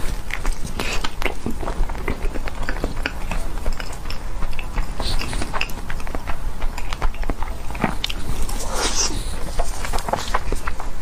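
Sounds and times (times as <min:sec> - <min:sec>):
person chewing with mouth clicks: 0:00.0 - 0:11.0.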